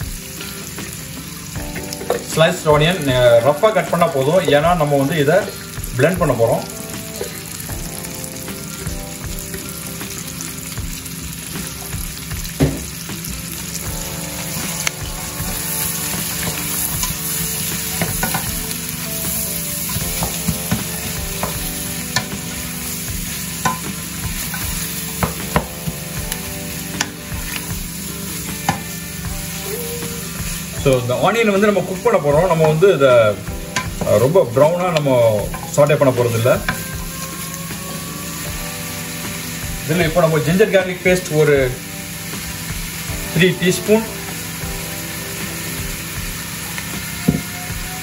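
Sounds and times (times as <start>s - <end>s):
onions sizzling in butter: 0.0s - 48.0s.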